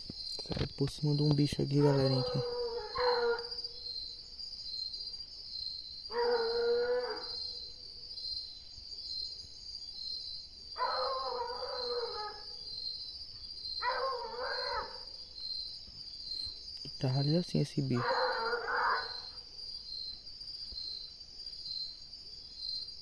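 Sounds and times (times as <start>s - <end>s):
high insect trill: 0.0s - 23.0s
dog baying: 1.8s - 3.5s, 6.1s - 7.4s, 13.8s - 15.1s, 18.0s - 19.3s.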